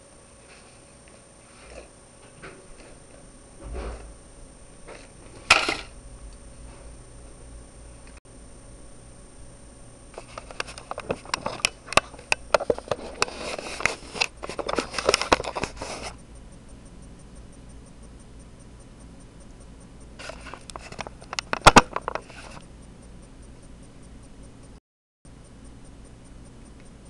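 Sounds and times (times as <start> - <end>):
rapid clicks: 10.1 - 27.0.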